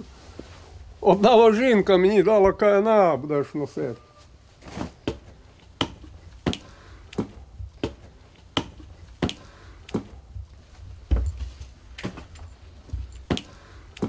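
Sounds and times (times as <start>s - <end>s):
footsteps on a hard floor: 9.2s - 13.5s.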